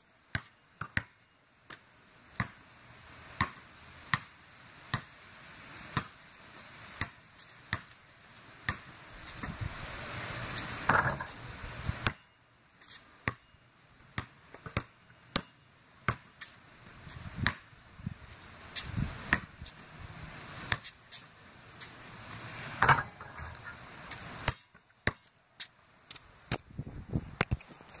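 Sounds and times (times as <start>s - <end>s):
basketball bouncing on concrete: 0.3s - 1.8s, 2.4s - 2.6s, 3.4s - 4.3s, 4.9s - 5.1s, 6.0s - 6.2s, 7.0s - 7.9s, 10.8s - 11.4s, 12.0s - 12.3s, 13.2s - 13.5s, 14.1s - 16.4s, 17.4s - 17.7s, 19.3s - 19.5s, 20.7s - 21.0s, 22.8s - 23.7s, 24.4s - 25.3s.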